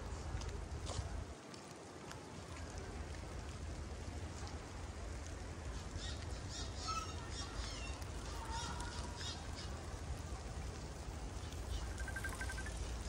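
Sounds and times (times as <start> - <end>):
songbird chirping: 11.4 - 12.9.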